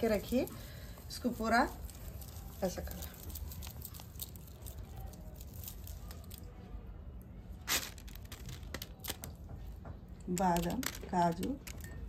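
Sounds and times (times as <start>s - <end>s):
sharp plastic crackle: 0.0s - 12.0s
plastic sheet crinkling: 7.6s - 9.4s, 10.3s - 12.0s.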